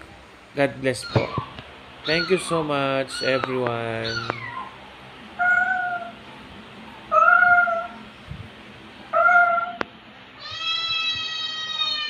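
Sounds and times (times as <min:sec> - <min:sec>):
cat meowing: 0:03.2 - 0:04.8, 0:05.4 - 0:06.2, 0:07.1 - 0:08.0, 0:09.1 - 0:09.8, 0:10.4 - 0:12.0.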